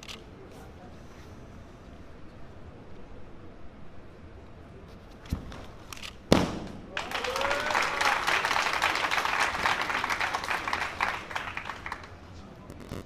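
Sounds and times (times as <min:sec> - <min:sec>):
crowd applauding and cheering: 0:06.9 - 0:12.2.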